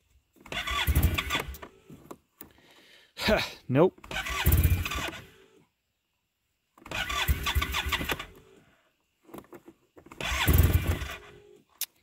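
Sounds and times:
engine cranking with starter: 0.4 - 1.8, 4.0 - 5.6, 6.8 - 8.6, 10.0 - 11.7.

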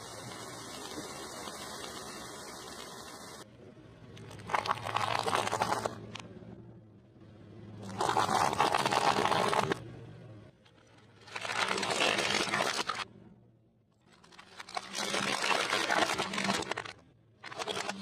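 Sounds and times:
firework fountains hissing: 0.0 - 3.4.

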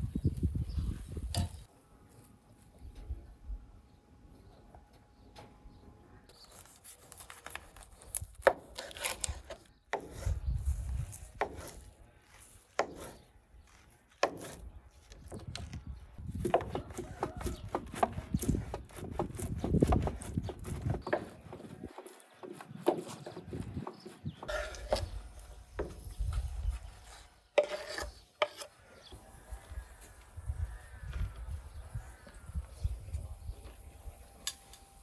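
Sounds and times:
cheese grating on metal grater: 27.6 - 28.7.

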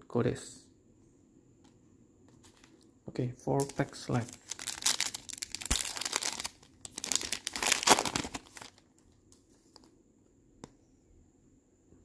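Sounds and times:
foil wrapper tearing and crinkling: 3.6 - 8.9.

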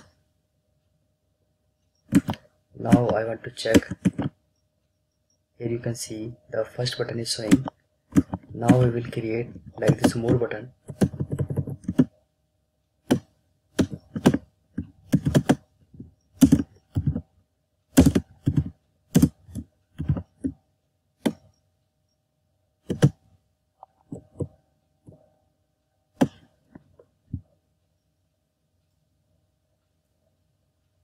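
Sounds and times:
computer keyboard typing: 2.0 - 4.4, 6.8 - 12.2, 13.1 - 17.2, 17.9 - 20.6, 22.9 - 23.2.

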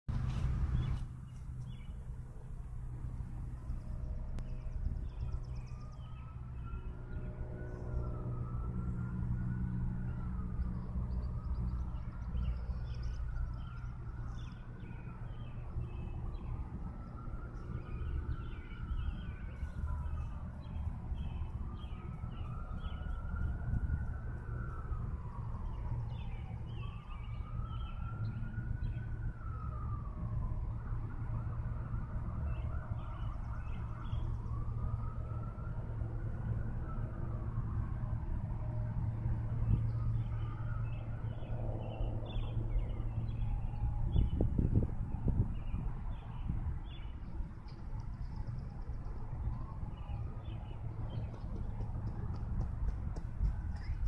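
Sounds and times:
emergency vehicle siren wailing: 1.6 - 54.0
steady low rumble: 41.0 - 54.0.

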